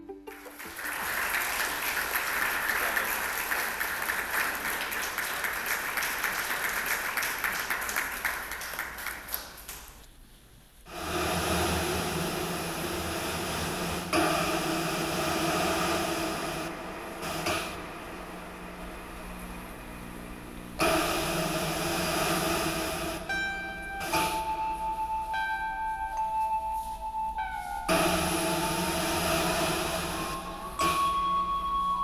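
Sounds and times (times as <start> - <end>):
audience applauding: 0.0 - 10.0
low droning hum: 10.8 - 25.0, 27.9 - 32.0.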